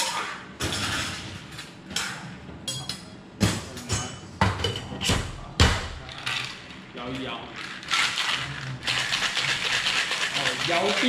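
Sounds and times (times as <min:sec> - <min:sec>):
ice knocking in cocktail shaker: 0:09.1 - 0:11.0.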